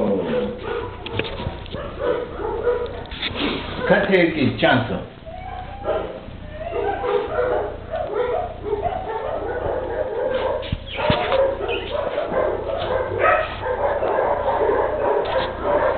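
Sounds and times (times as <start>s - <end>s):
dog yipping and whimpering: 5.2s - 15.9s.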